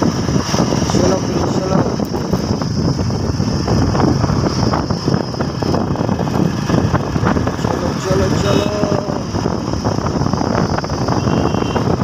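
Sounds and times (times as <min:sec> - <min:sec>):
motorbike engine: 0:00.0 - 0:12.0
road noise: 0:00.0 - 0:12.0
wind buffeting microphone: 0:00.0 - 0:12.0.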